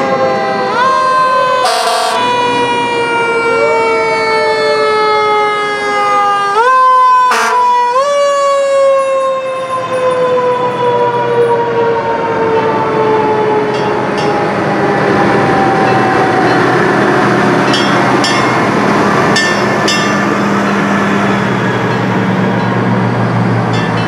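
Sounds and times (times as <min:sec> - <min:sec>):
fire truck sirens wailing: 0:00.0 - 0:24.0.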